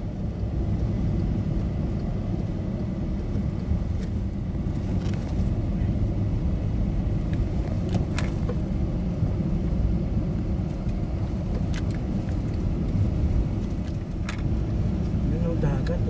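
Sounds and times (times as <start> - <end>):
engine and tyre rumble: 0.0 - 16.0.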